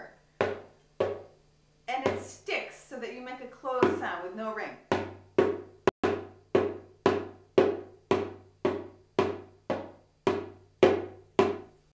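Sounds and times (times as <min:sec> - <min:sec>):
damped darbuka hits: 0:04.9 - 0:11.8.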